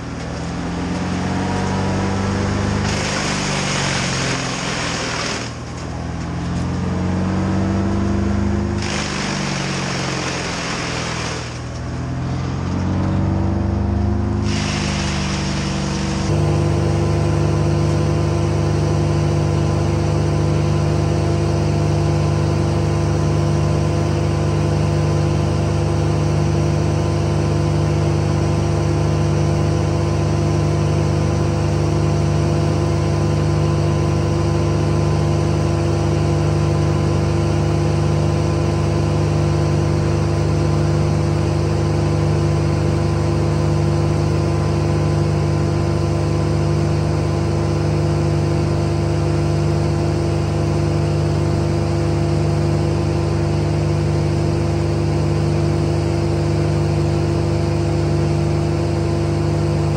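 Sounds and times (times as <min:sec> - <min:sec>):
engine droning: 0:00.0 - 0:27.1.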